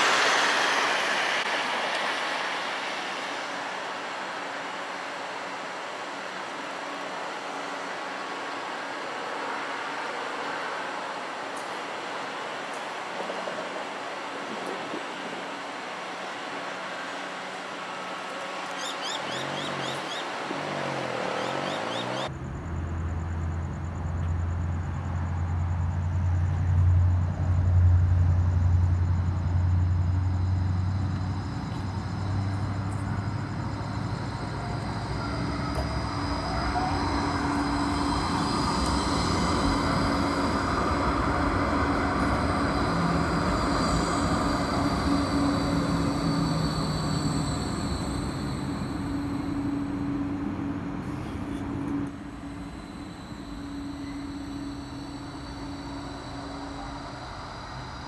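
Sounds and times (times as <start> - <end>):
low hum: 0.0 - 6.4, 22.2 - 58.0
high electric whine: 0.0 - 21.6, 22.2 - 58.0
tram wheels rumbling on rail: 0.0 - 58.0.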